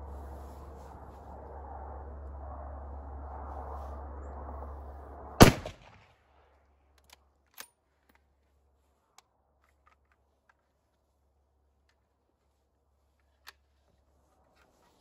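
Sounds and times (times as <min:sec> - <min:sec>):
rifle shot: 0:05.4 - 0:06.1.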